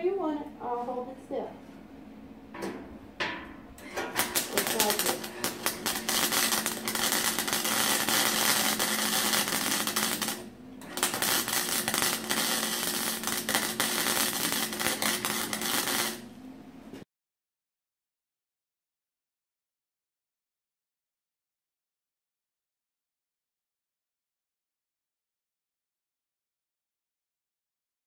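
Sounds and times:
welder hum: 3.6s - 17.0s
welding arc crackling: 3.8s - 16.3s.

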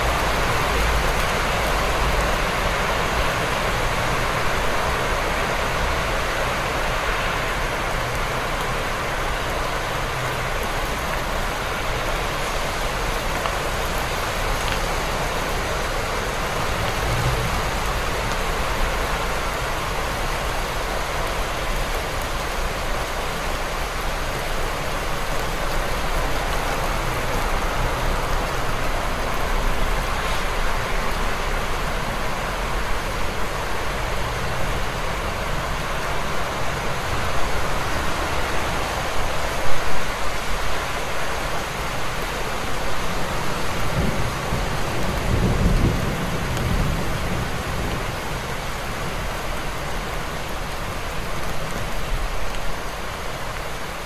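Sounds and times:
low city rumble: 0.0s - 54.0s
rain hiss: 0.0s - 54.0s.

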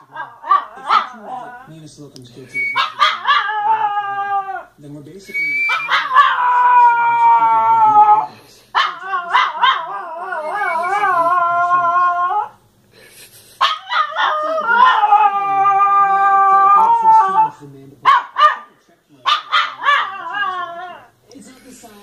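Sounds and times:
small dog howling: 2.7s - 4.7s, 5.7s - 12.6s, 13.8s - 18.7s, 19.3s - 21.2s.

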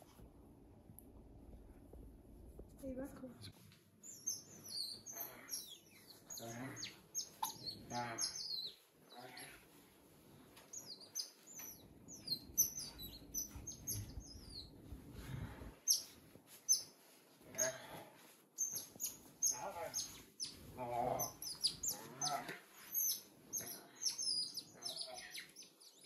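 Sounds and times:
otters chirping: 4.0s - 9.6s, 10.7s - 14.9s, 15.8s - 17.8s, 18.6s - 26.0s
bedding rustling: 8.7s - 21.4s.

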